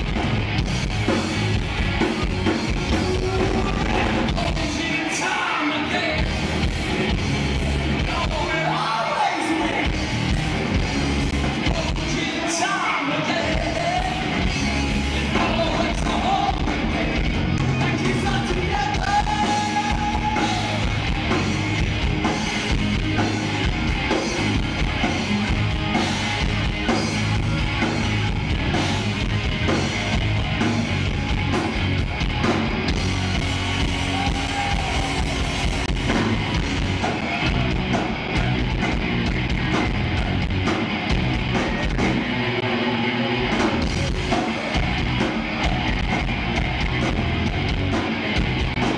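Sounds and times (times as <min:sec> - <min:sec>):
live rock band playing: 0:00.0 - 0:48.9
person singing: 0:02.7 - 0:06.4.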